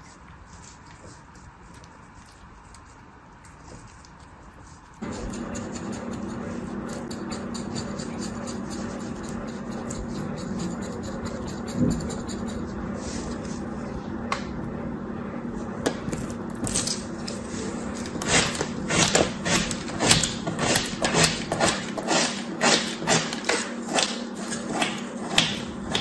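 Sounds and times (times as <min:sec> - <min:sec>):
metal blade cutting kinetic sand: 0:05.0 - 0:12.7, 0:18.2 - 0:26.0.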